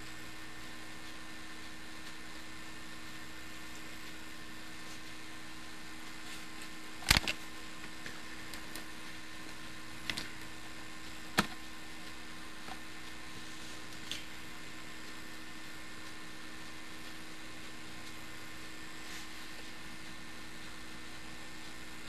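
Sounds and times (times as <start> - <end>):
computer hum and hiss: 0.0 - 22.0
faint steady tones: 0.0 - 22.0
sharp clicks: 6.6 - 7.4.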